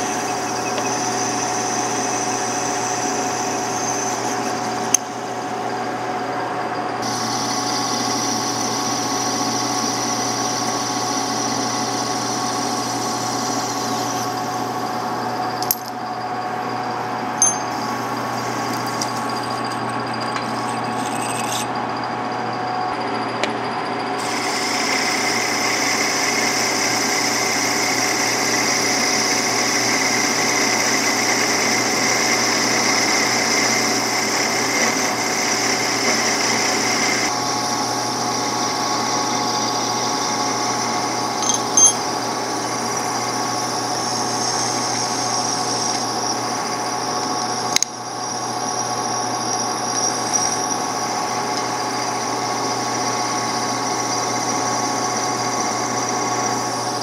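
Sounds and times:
file working metal: 0:00.0 - 0:05.0, 0:17.4 - 0:21.9, 0:24.2 - 0:47.6, 0:48.7 - 0:57.0
metal lathe running: 0:00.0 - 0:57.0.

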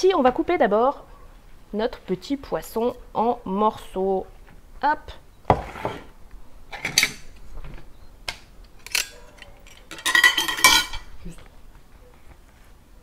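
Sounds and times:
sharp knocks on table: 0:05.5 - 0:06.0
knife and dishes clinking: 0:08.8 - 0:11.1.

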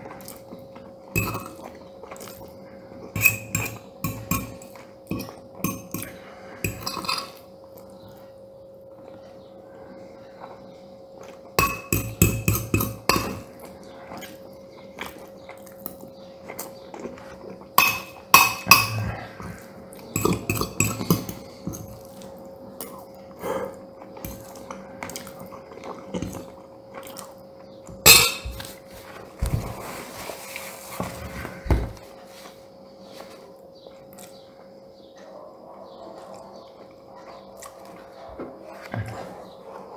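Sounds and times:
faint steady hum: 0:00.0 - 0:39.9
cutlery clinking on ceramic bowl: 0:01.2 - 0:01.6, 0:03.2 - 0:06.1, 0:06.7 - 0:07.4, 0:11.6 - 0:13.5, 0:17.8 - 0:19.0, 0:20.1 - 0:21.9, 0:28.0 - 0:28.7.

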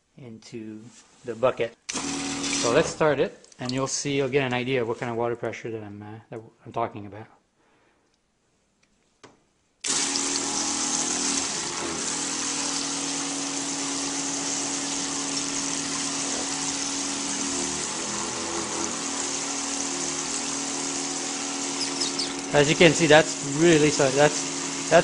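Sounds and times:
water pump humming: 0:01.9 - 0:03.0, 0:09.8 - 0:25.0
water spraying into bucket: 0:01.9 - 0:03.0, 0:09.8 - 0:25.0.

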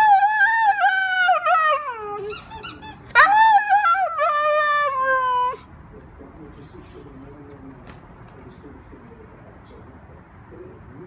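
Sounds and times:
short squeaky sounds: 0:02.3 - 0:03.1.

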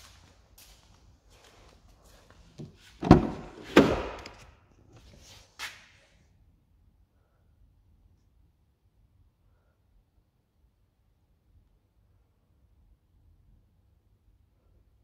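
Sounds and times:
car door clunks: 0:03.0 - 0:04.3.

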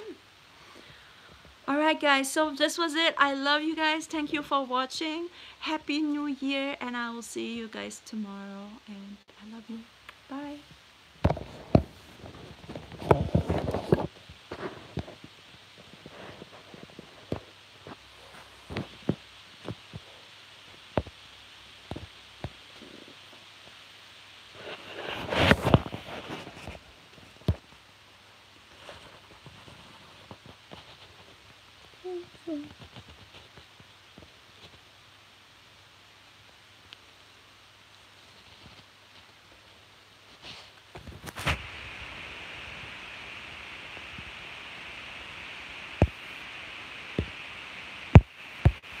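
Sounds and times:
faint room noise: 0:00.0 - 0:49.0
steady hiss: 0:00.0 - 0:49.0
microphone handling rustling: 0:10.7 - 0:20.2, 0:24.4 - 0:27.7, 0:40.3 - 0:41.9.

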